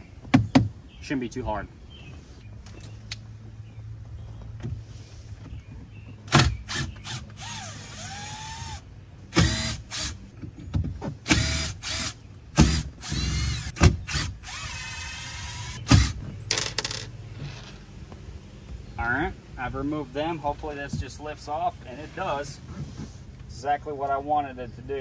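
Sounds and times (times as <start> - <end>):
impact driver motor whine: 11.3 - 16.2.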